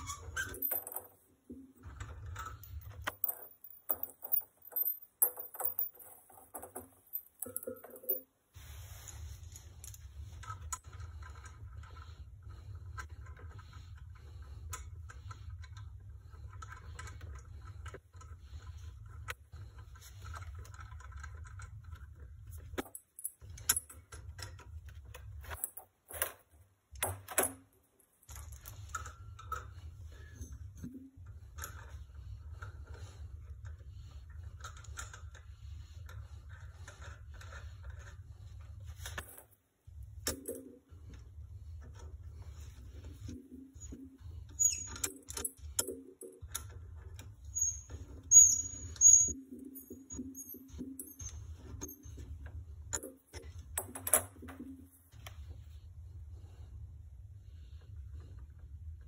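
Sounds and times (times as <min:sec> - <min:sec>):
metal fittings clinking: 0:00.0 - 0:08.3, 0:47.5 - 0:52.2.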